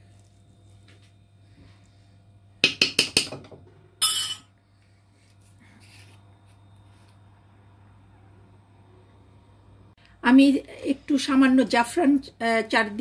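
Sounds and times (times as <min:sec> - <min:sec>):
metal spoon tapping a pot: 0:02.6 - 0:04.5.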